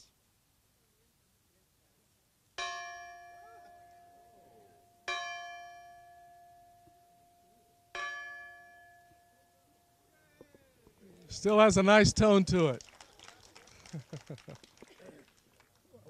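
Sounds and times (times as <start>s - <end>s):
bell struck by hand ringing: 2.6s - 10.1s.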